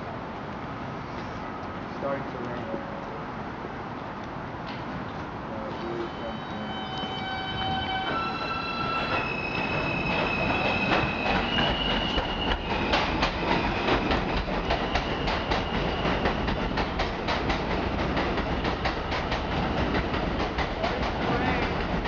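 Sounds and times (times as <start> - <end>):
subway train propulsion whine: 2.8 - 22.0
train wheels clacking over rail joints: 8.9 - 22.0.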